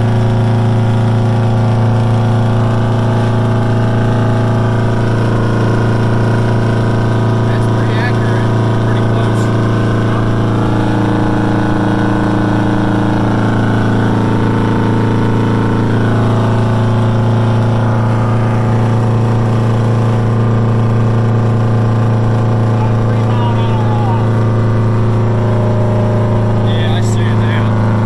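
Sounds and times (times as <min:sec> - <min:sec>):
diesel truck engine drone: 0:00.0 - 0:28.0.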